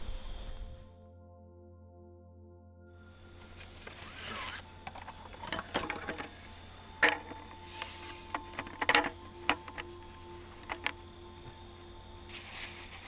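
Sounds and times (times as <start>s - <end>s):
metal camp table clattering: 3.8s - 11.0s.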